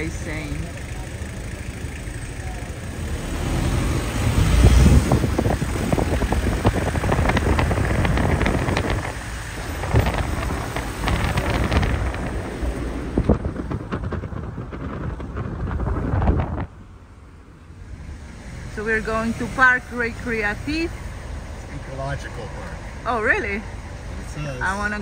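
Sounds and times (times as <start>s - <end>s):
street noise: 0.0s - 25.0s
wind buffeting microphone: 3.3s - 17.2s.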